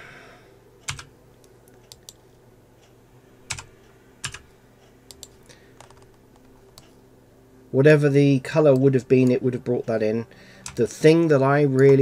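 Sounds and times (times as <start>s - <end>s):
faint steady hum: 0.0s - 12.0s
computer keyboard key presses: 0.9s - 1.1s, 3.5s - 4.4s.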